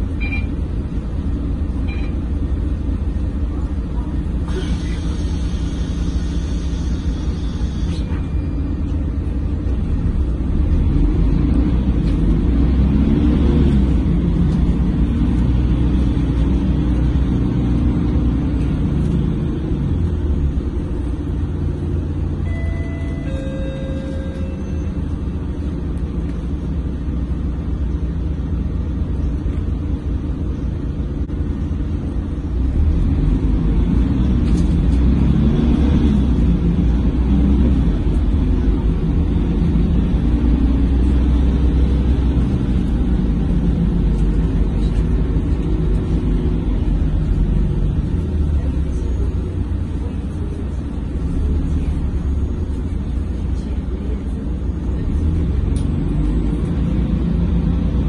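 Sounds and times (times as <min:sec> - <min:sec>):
bus engine and road rumble: 0:00.0 - 0:58.0
short tones: 0:22.4 - 0:25.2.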